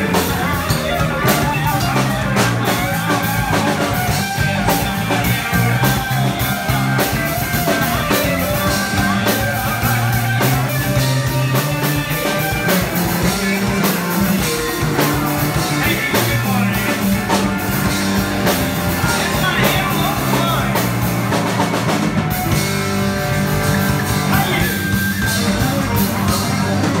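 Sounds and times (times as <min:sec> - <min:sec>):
bass guitar: 0:00.0 - 0:27.0
drum kit beat: 0:00.0 - 0:27.0
electric guitar: 0:00.0 - 0:27.0.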